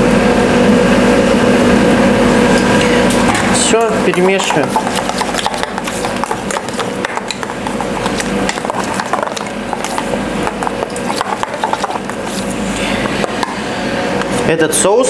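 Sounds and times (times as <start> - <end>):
utensil stirring sauce in bowl: 3.6 - 13.5.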